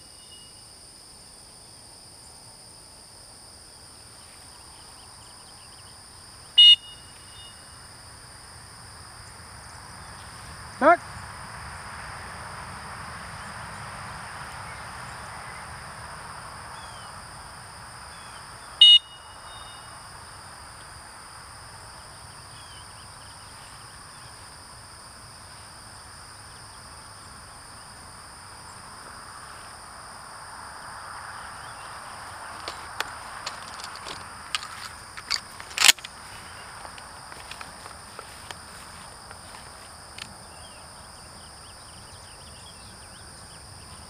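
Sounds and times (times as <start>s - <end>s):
high insect drone: 0.0s - 44.0s
dog whistle blast: 6.6s - 7.0s, 18.8s - 19.3s.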